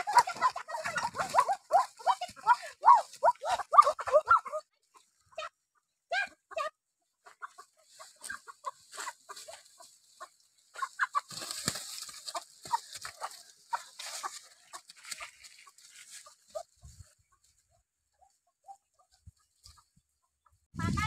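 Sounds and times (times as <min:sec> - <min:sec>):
chicken squawking and clucking: 0:00.0 - 0:17.4
leaves and brush rustling: 0:07.7 - 0:17.6.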